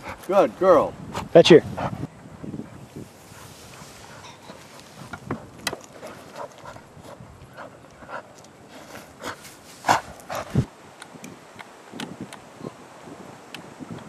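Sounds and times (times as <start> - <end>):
dog paws on soil and grass: 2.8 - 10.7.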